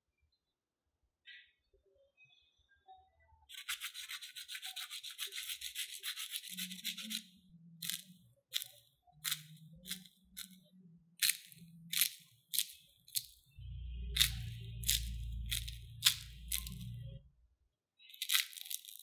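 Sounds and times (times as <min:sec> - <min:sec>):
fried crust crackling: 0:07.8 - 0:10.6, 0:11.2 - 0:17.0, 0:18.1 - 0:19.0.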